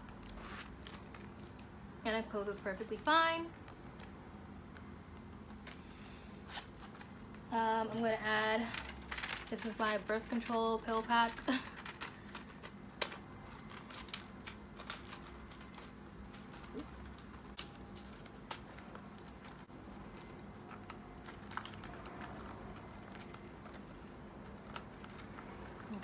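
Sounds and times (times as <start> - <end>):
zipper closing: 6.4 - 7.0
plastic blister pack rustling: 8.2 - 21.2.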